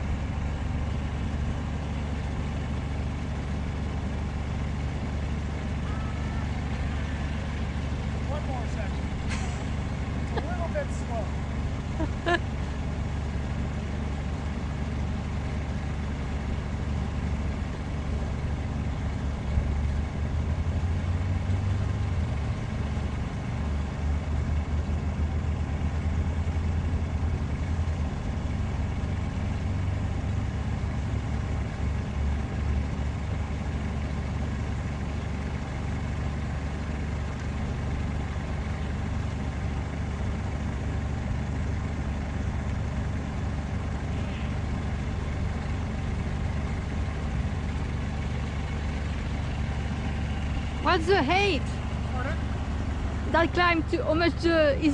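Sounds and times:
motor droning: 0:05.1 - 0:22.0.

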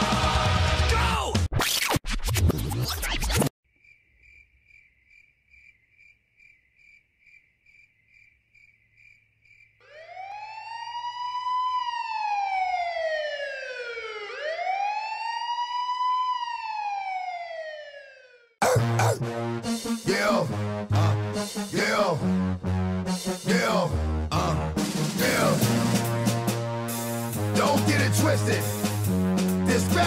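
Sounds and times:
police siren wailing: 0:09.8 - 0:18.6.

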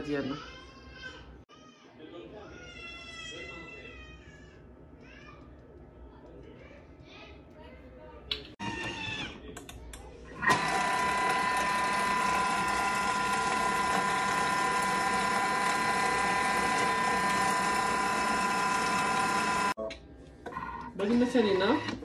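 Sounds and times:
food processor motor whining: 0:10.3 - 0:19.8
motor clicks: 0:10.4 - 0:19.7.

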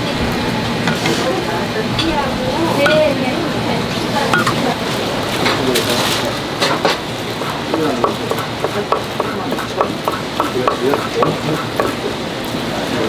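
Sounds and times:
knife tapping on wooden cutting board: 0:07.7 - 0:12.0.

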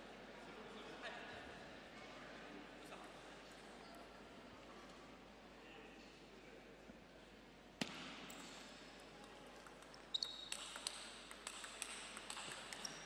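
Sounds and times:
table tennis ball clicking: 0:09.6 - 0:13.0.

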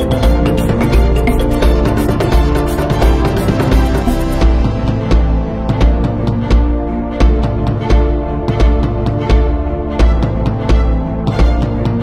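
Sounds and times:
music with pulsing bass beat: 0:00.0 - 0:12.0.

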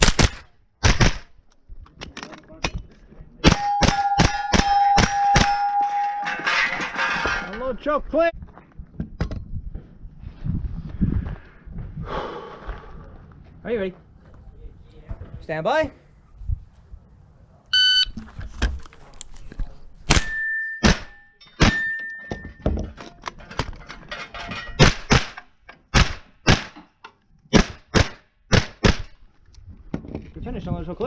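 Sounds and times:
carbine gunshots: 0:00.0 - 0:01.3
steel plate target ringing: 0:03.4 - 0:07.0, 0:20.2 - 0:22.6.

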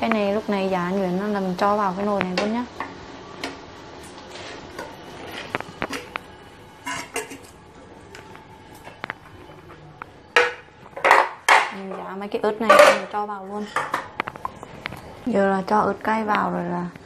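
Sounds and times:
boiling water: 0:00.0 - 0:11.7
spoon clinking against pot: 0:06.8 - 0:07.5
spoon scraping and tapping a plate: 0:06.9 - 0:07.5.

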